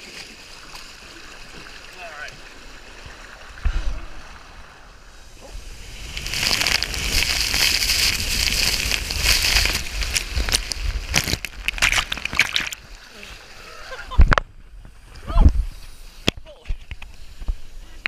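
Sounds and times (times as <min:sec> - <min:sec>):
choppy water splashing: 0:00.0 - 0:14.4
water and air rushing: 0:00.0 - 0:18.0.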